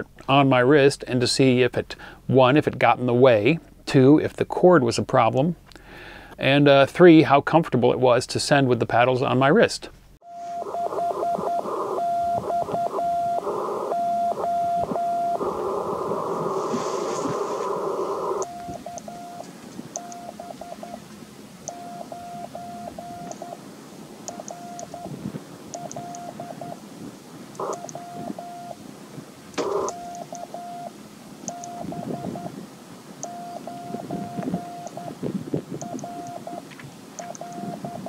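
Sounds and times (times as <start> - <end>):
receiver static hiss: 9.2 - 38.0
morse code sidetone beeps: 10.2 - 16.5, 18.3 - 21.0, 21.7 - 23.6, 24.3 - 25.1, 25.7 - 26.8, 27.6 - 28.8, 29.6 - 30.9, 31.5 - 32.6, 33.2 - 35.2, 35.8 - 36.6, 37.2 - 38.0.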